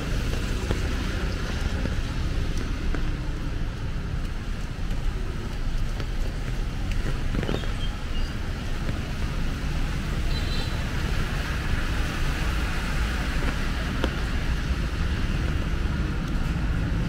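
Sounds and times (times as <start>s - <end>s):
low traffic rumble: 0.0s - 17.0s
tyres hissing on wet road: 0.0s - 17.0s.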